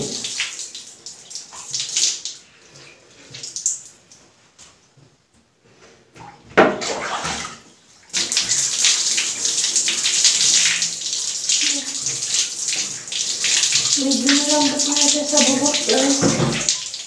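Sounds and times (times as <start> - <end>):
wet hair splashing: 8.2 - 17.0.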